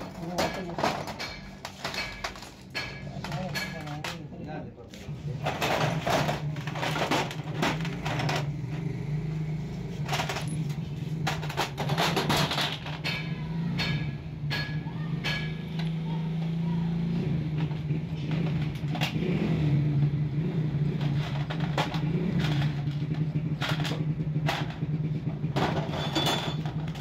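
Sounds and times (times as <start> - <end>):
metal clinks and knocks of tools: 0.0 - 4.3, 9.9 - 16.0, 25.5 - 27.0.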